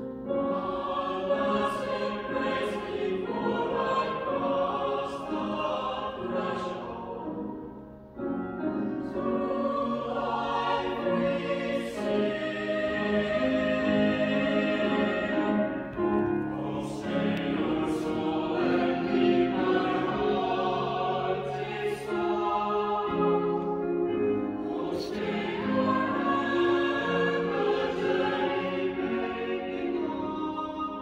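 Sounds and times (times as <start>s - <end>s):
choir singing chords: 0.0s - 31.0s
grand piano: 0.0s - 31.0s.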